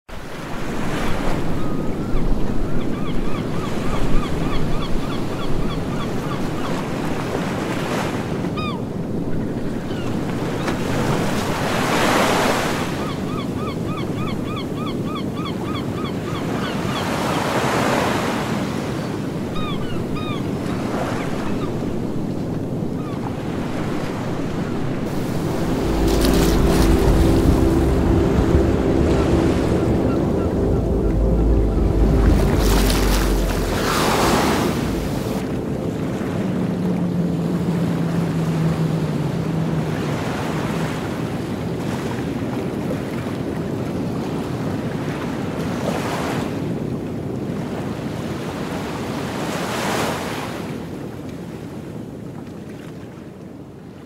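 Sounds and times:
wind over open water: 0.1s - 54.0s
wind rumbling on microphone: 19.0s - 49.1s
small waves lapping: 23.2s - 31.3s
low steady hum: 25.1s - 39.9s.

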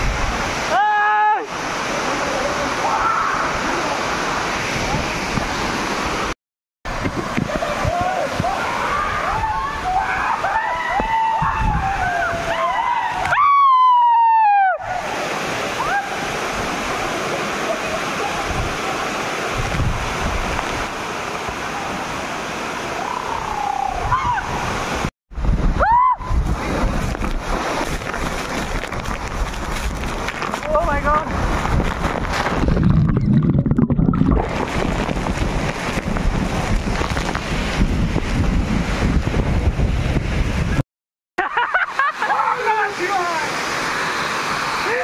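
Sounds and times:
waterfall crashing: 0.0s - 13.3s, 13.9s - 25.1s, 41.9s - 45.0s
wind buffeting microphone: 11.0s - 12.5s, 19.5s - 20.9s, 23.9s - 40.8s
waterfall pouring: 26.4s - 39.1s.

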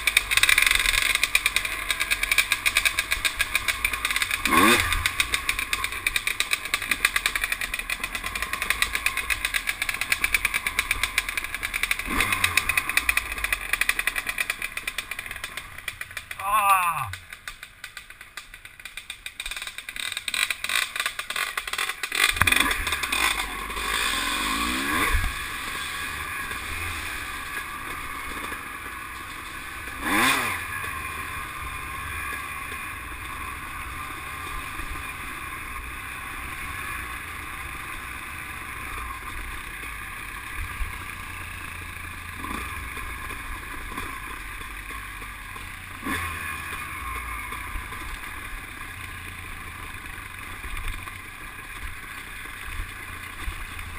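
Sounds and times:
off-road engines running: 0.0s - 53.9s.

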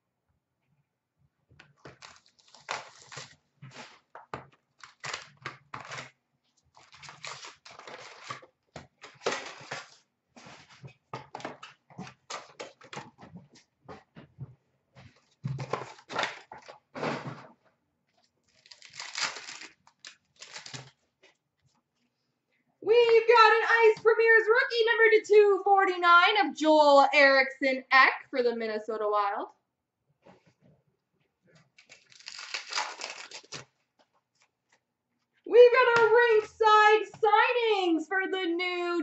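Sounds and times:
wrappers crinkling and tearing: 1.9s - 4.1s, 4.8s - 10.1s, 18.5s - 21.0s, 31.8s - 33.8s.

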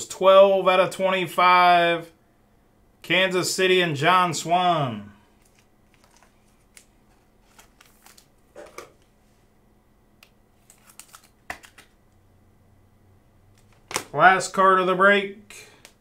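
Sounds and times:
plastic clicks and rustles: 5.4s - 9.1s, 10.2s - 12.0s.

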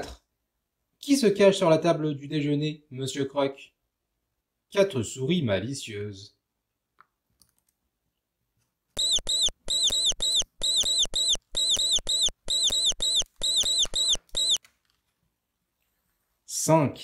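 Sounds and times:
cartoon mouse squeaks: 9.0s - 14.6s.

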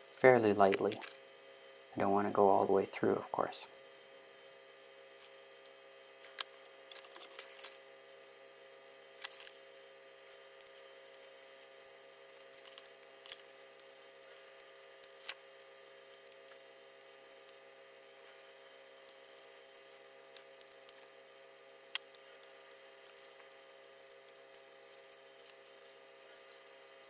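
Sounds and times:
faint steady hum: 0.0s - 27.0s
knife scratching foam: 9.6s - 27.0s.

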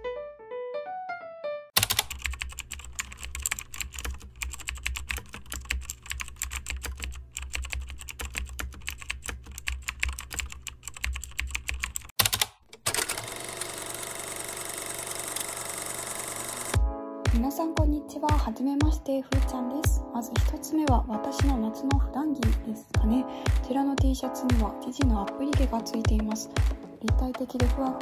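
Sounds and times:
typing on computer keyboard: 1.8s - 16.8s.

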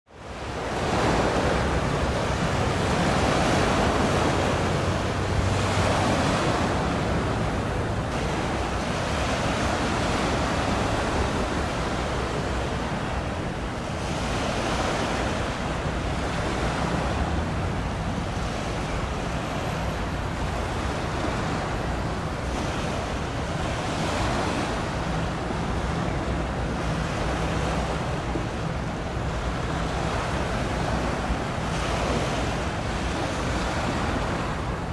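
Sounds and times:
sea waves rushing: 0.1s - 34.9s.

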